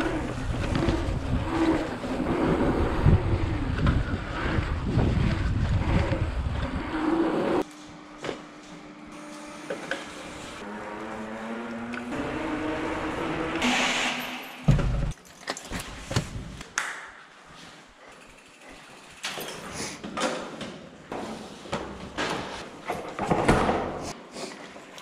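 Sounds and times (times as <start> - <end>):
wind noise on microphone: 0.0 - 7.1.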